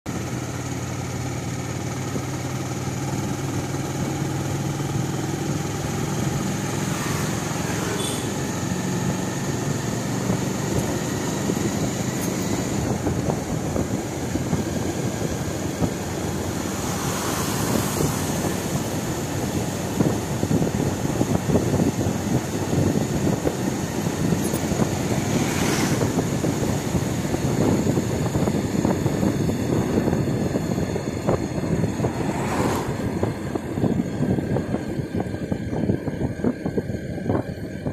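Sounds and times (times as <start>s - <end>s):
road noise: 0.0s - 37.9s
vehicle engine running: 0.0s - 37.9s
wind: 0.0s - 37.9s
rough rushing noise: 4.9s - 9.2s, 10.2s - 35.9s.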